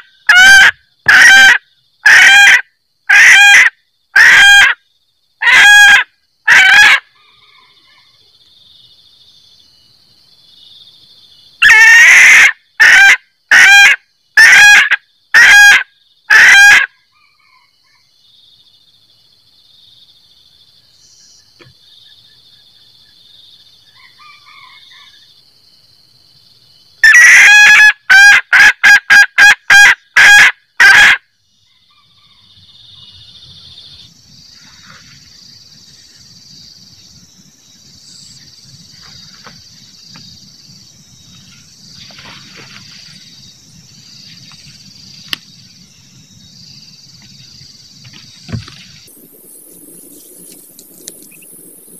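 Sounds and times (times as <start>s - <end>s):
hen cackling: 0.0s - 4.8s, 5.4s - 8.0s, 11.6s - 17.7s, 27.0s - 31.2s
faint high insect buzz: 6.0s - 11.7s, 31.2s - 51.9s.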